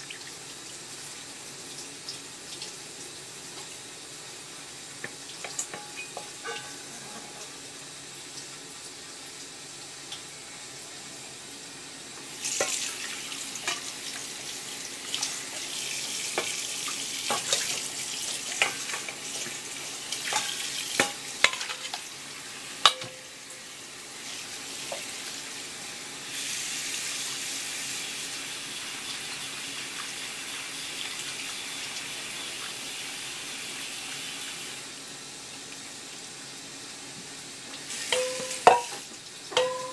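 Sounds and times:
water running into a metal bowl: 0:04.9 - 0:07.7, 0:12.3 - 0:25.7, 0:37.8 - 0:39.9
metal bowl clinking: 0:05.5 - 0:07.6, 0:22.8 - 0:23.5, 0:38.1 - 0:39.9.

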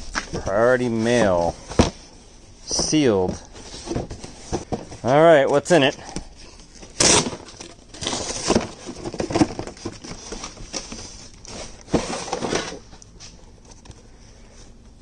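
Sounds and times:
cardboard and paper rustling: 0:00.0 - 0:14.1.

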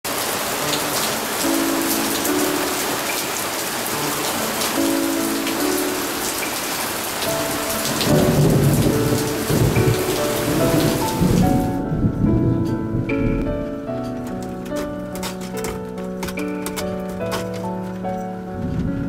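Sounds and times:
heavy rain pouring: 0:00.1 - 0:19.0
thunder rumbling: 0:07.3 - 0:15.0, 0:18.6 - 0:19.0.

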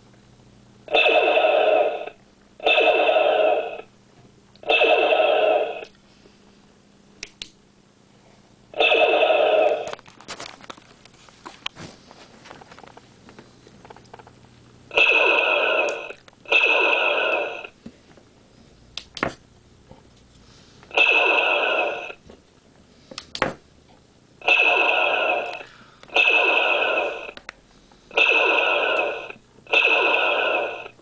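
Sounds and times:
blaster shots: 0:00.9 - 0:03.8, 0:04.6 - 0:05.9, 0:08.8 - 0:09.9, 0:14.9 - 0:17.7, 0:21.0 - 0:22.2, 0:24.4 - 0:27.4, 0:28.1 - 0:31.0.

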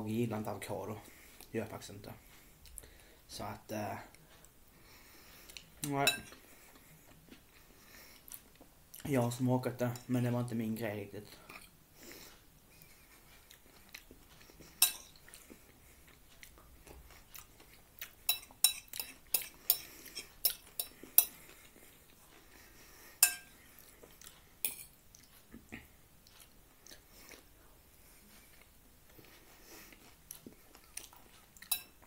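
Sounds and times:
fork clinking on a plate: 0:14.8 - 0:15.1, 0:18.3 - 0:21.4, 0:23.2 - 0:23.5, 0:31.6 - 0:32.0.

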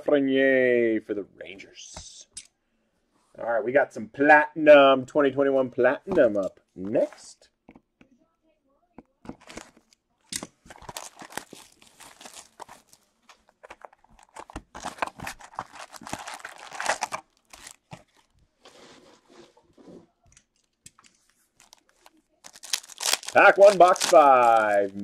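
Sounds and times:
foil packs crinkling: 0:10.7 - 0:18.3, 0:21.6 - 0:25.0
plastic wrap tearing: 0:10.7 - 0:18.3, 0:21.6 - 0:25.0.

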